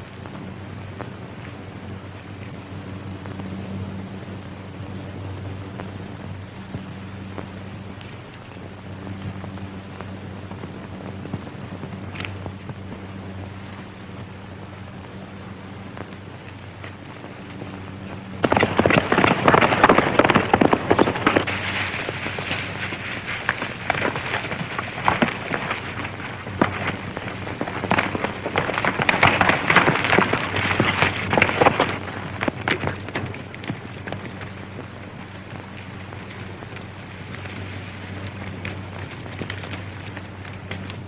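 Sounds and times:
low steady hum: 0.0s - 41.0s
galloping hoofbeats on hard ground: 15.9s - 41.0s.

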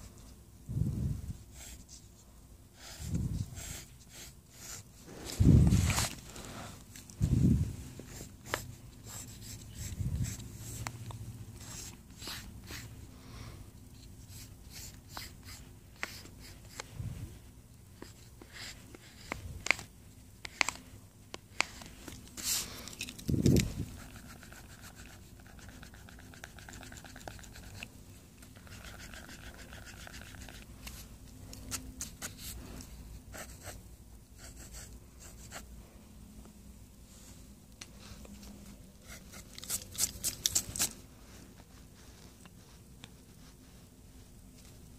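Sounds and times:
pencil scratching on paper: 2.8s - 4.9s, 8.1s - 10.8s, 11.6s - 12.9s, 14.0s - 16.7s, 23.9s - 27.8s, 28.5s - 30.6s, 33.3s - 33.8s, 34.4s - 35.6s.

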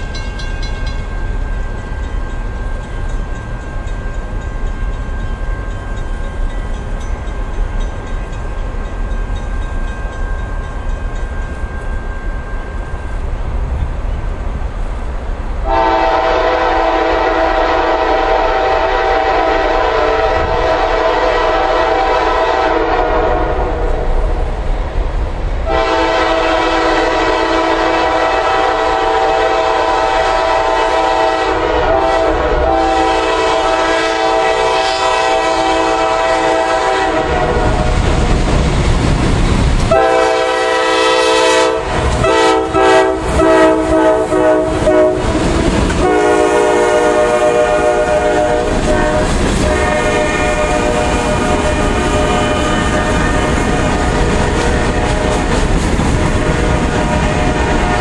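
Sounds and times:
low rumble of train: 0.0s - 58.0s
locomotive air horn blasts: 15.6s - 23.9s, 25.7s - 37.9s, 39.9s - 45.4s, 46.0s - 55.3s, 56.3s - 58.0s.

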